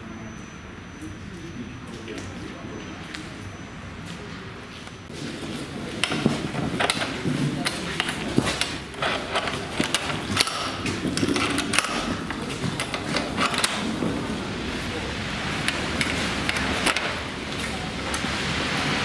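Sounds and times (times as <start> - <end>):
busy background hubbub: 0.0 - 19.0
footsteps: 4.0 - 19.0
wooden doors knocking and clattering: 5.6 - 18.2.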